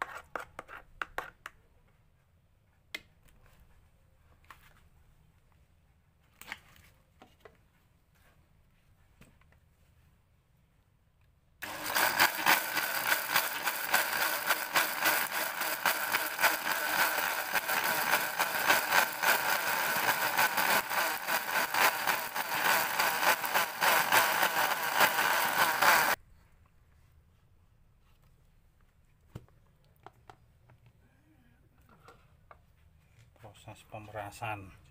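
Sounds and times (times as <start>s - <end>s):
electric blender whine: 11.6s - 26.2s
rattle in blender: 11.6s - 26.2s.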